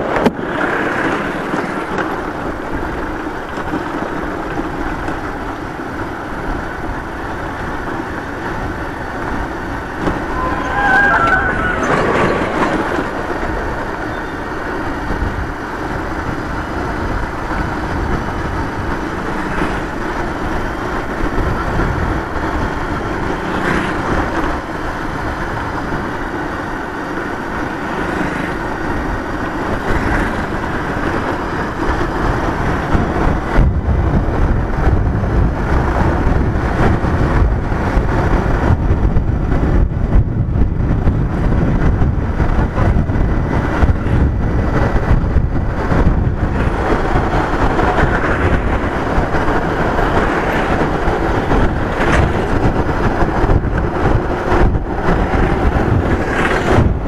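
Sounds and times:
motorcycle engine and road noise: 0.0s - 57.0s
short high-pitched sound: 10.2s - 12.5s.

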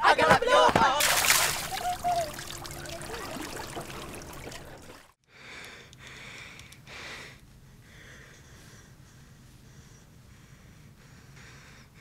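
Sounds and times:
water splashing and trickling: 1.0s - 5.2s
person breathing hard: 5.3s - 12.0s.

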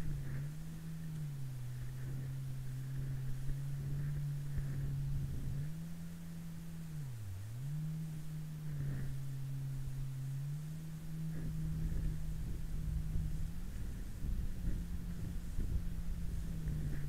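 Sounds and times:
jet ski engine drone: 0.0s - 17.0s.

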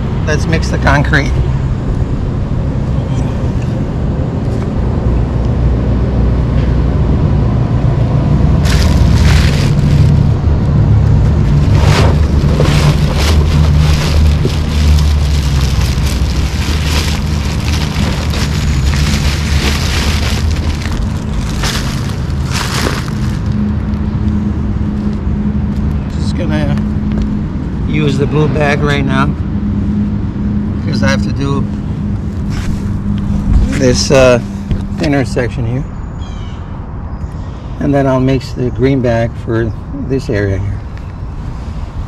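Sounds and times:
steady low rumble: 0.0s - 38.8s
paper bag rustling: 8.6s - 10.3s, 11.4s - 23.7s
gritty concrete mix pouring: 11.6s - 23.5s.

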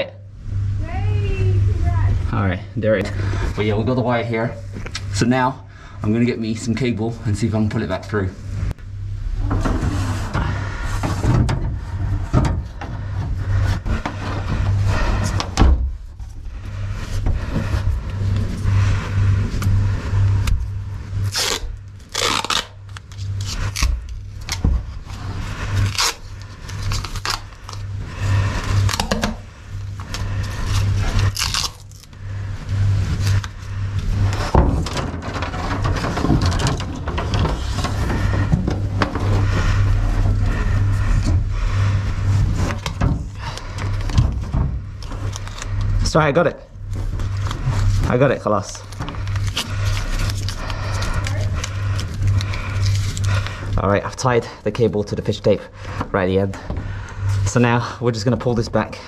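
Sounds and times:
steady low hum: 0.0s - 59.0s
scraping and rustling: 9.4s - 46.0s, 46.8s - 53.8s
duct tape ripping off roll: 21.2s - 24.6s, 25.7s - 27.9s, 30.1s - 32.1s.

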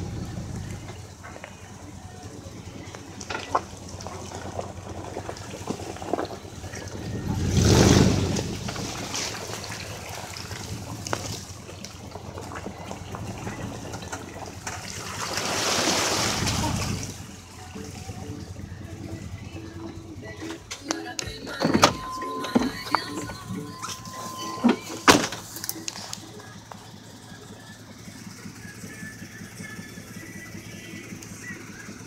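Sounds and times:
tires splashing through mud: 0.0s - 20.7s
pickup engine revving: 0.0s - 32.0s.

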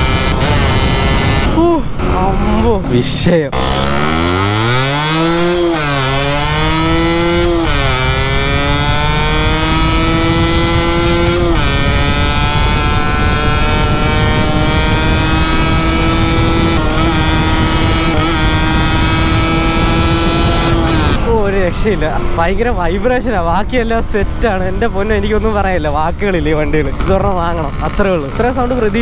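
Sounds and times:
two-stroke motorcycle engine accelerating: 0.0s - 2.7s, 3.5s - 29.0s.

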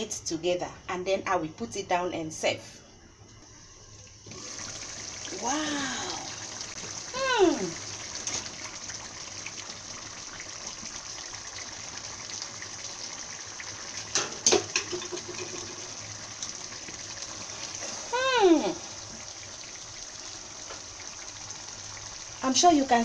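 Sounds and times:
soup sizzling and bubbling: 3.4s - 23.0s
person exclaiming: 5.3s - 6.4s, 7.1s - 7.8s, 18.0s - 18.8s.

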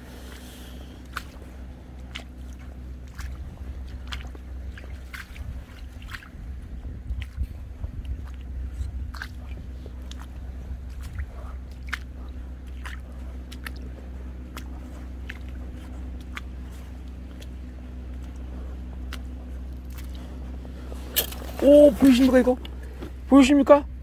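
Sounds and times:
footsteps on wet rocks: 0.0s - 23.4s
wet squelches: 0.0s - 23.4s
steady low hum: 0.0s - 24.0s.

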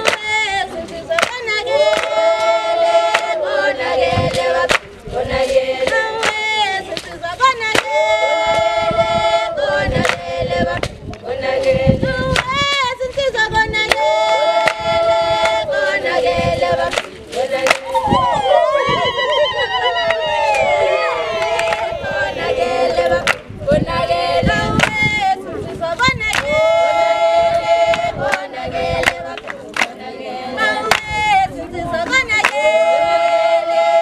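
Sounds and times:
women singing in unison: 0.0s - 34.0s
sharp hand claps: 1.2s - 2.2s, 4.3s - 4.9s, 5.9s - 7.1s, 16.9s - 17.9s, 23.2s - 23.5s, 29.0s - 30.0s, 32.4s - 32.6s.

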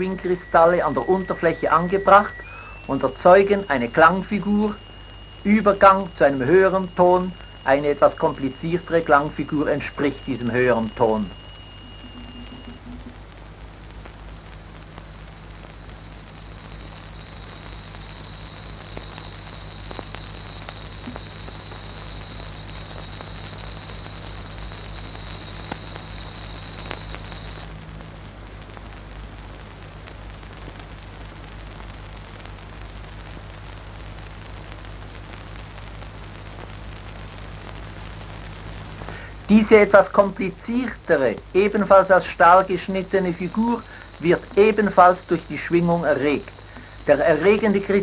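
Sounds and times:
low hum: 0.0s - 39.5s
high-pitched vibrating plate tone: 9.9s - 13.2s.

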